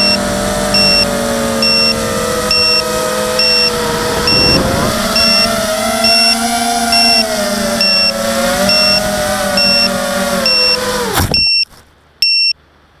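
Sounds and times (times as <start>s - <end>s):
quadcopter motors whining: 0.0s - 11.6s
short high beep: 1.6s - 7.2s.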